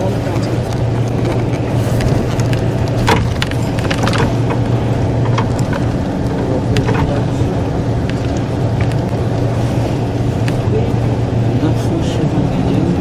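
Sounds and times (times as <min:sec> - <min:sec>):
vehicle motor drone: 0:00.0 - 0:13.0
rattles and knocks: 0:00.3 - 0:09.4.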